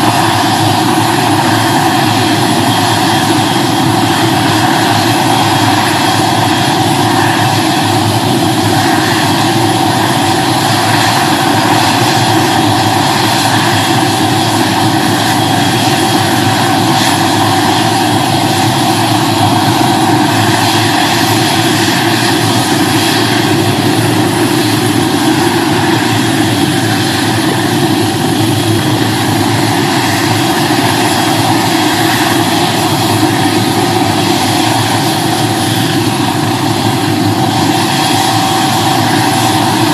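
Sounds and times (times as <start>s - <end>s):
helicopter engine and rotors: 0.0s - 39.9s
turbine whine: 0.0s - 39.9s.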